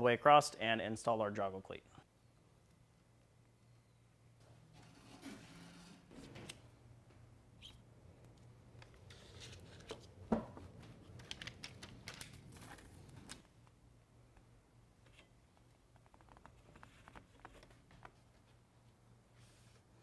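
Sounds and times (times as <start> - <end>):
tape rustling and crackling: 8.2 - 13.8, 15.0 - 18.9.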